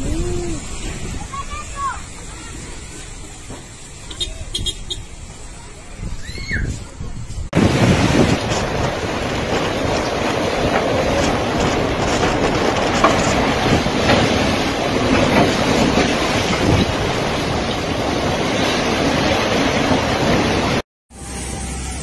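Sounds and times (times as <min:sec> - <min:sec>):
wind buffeting microphone: 0:00.0 - 0:02.9, 0:04.4 - 0:20.8
wind rushing through trees: 0:00.0 - 0:20.8.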